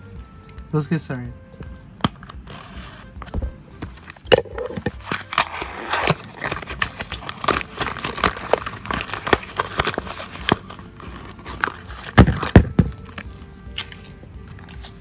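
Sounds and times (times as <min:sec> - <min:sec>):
cardboard box being opened: 0:04.0 - 0:15.0
plastic wrap crinkling: 0:04.7 - 0:15.0.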